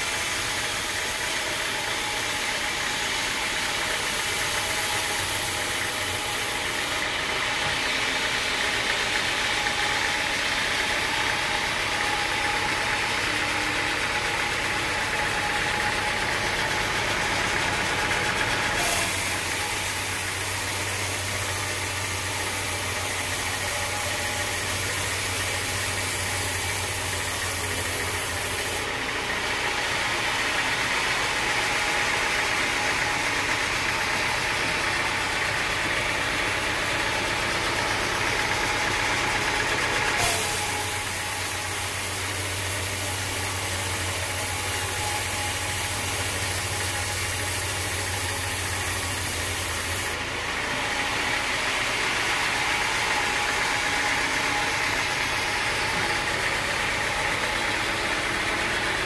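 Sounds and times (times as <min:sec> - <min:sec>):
band saw blade cutting wood: 0:00.0 - 0:29.0, 0:38.4 - 0:50.2
sawmill drive hum: 0:00.0 - 0:59.0.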